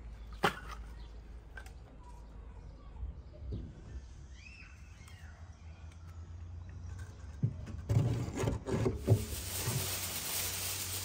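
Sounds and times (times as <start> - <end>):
aluminium foil crinkling: 9.0 - 11.0.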